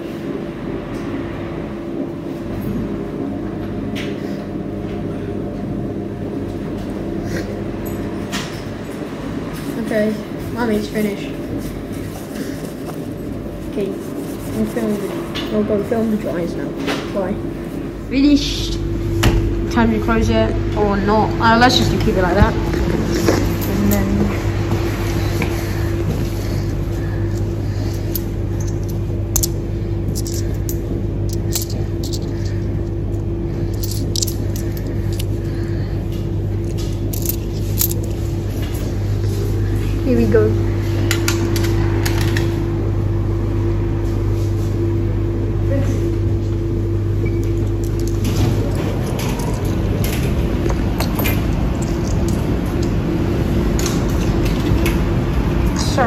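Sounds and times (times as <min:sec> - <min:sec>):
laundry machines humming: 0:00.0 - 0:56.0
tumble dryer running: 0:00.0 - 0:56.0
coins clinking into palm: 0:30.1 - 0:32.3, 0:33.7 - 0:35.3.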